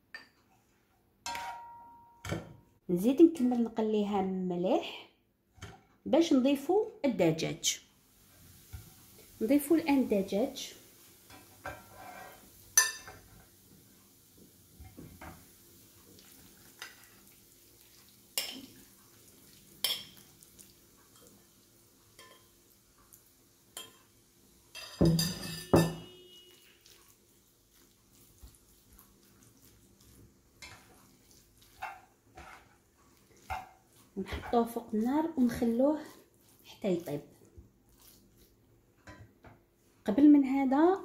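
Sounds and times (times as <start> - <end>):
spatula scraping a pan: 8.3 - 9.3, 11.0 - 13.6, 24.7 - 39.2.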